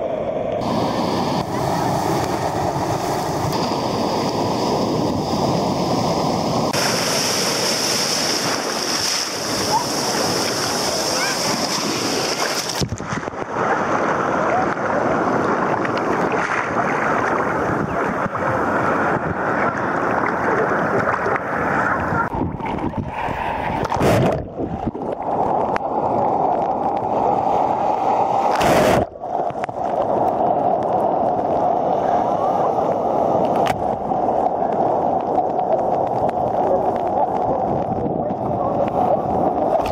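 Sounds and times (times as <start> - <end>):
sea surf washing: 0.0 - 39.9
sharp loud splashes: 6.7 - 13.4
muffled underwater sound: 13.4 - 27.2, 28.7 - 39.9.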